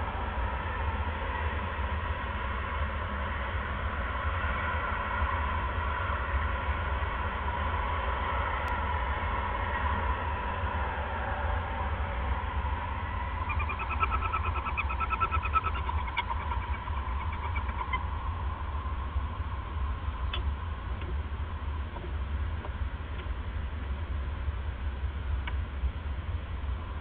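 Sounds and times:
steady low hum: 0.0 - 27.0
owl calling: 13.2 - 18.9.

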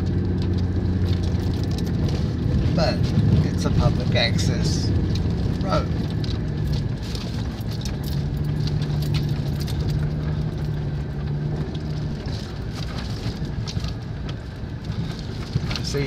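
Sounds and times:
stones clicking and rattling: 0.0 - 16.0
tyre and road noise: 0.0 - 16.0
vehicle engine running: 0.0 - 16.0.

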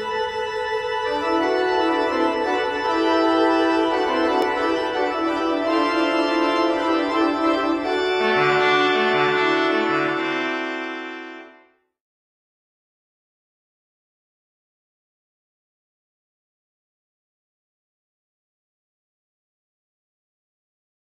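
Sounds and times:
organ playing held chords: 0.0 - 11.7.

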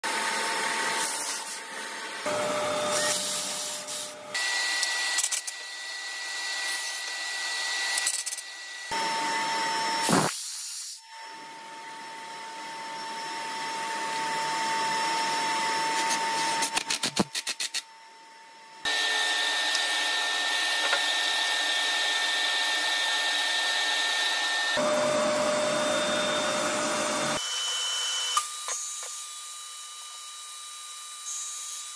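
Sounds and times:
power tool motor whine: 2.2 - 10.3, 17.8 - 29.3
cordless drill boring: 2.3 - 10.1, 18.8 - 29.4.

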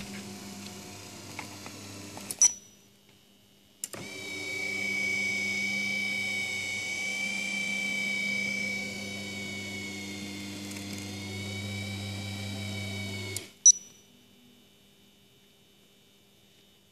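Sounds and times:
massage chair motor whining: 0.0 - 2.4, 3.9 - 13.6.

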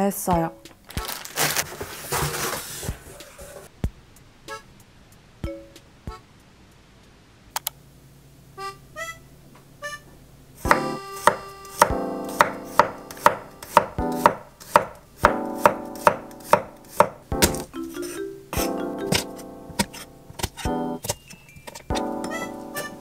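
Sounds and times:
knife tapping on wooden board: 10.7 - 21.2.

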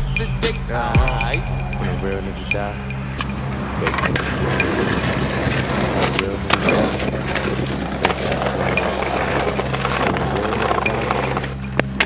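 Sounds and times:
hip hop beat: 0.0 - 12.0
skateboard wheels rolling on pavement: 2.6 - 12.0
skateboard clacks: 3.8 - 12.0.

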